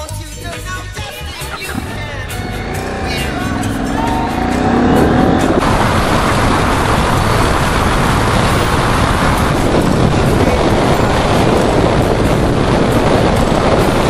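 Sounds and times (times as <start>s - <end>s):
motorcycle engine: 1.4s - 12.9s
wind and road noise: 1.4s - 14.0s
pitched gliding note: 1.5s - 6.0s.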